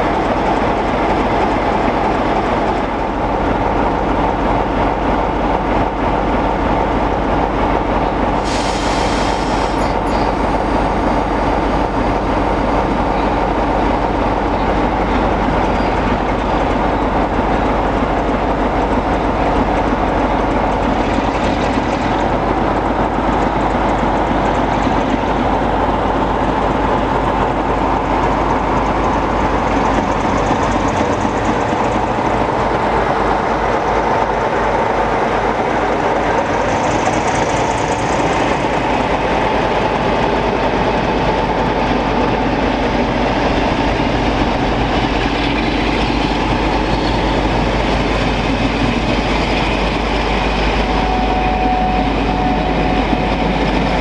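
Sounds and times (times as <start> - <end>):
diesel locomotive engine noise: 0.0 - 54.0
train wheels rumbling on track: 0.0 - 54.0.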